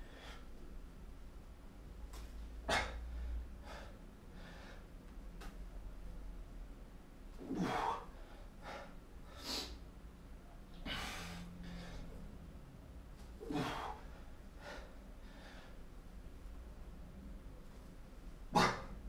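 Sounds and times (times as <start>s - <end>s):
man breathing heavily: 2.6s - 5.0s, 7.4s - 9.8s, 10.7s - 12.3s, 13.4s - 16.0s.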